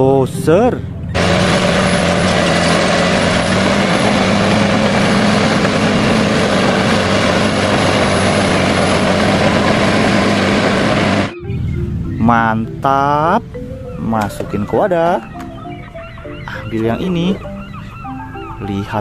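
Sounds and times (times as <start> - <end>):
bulldozer diesel engine: 0.6 - 12.8.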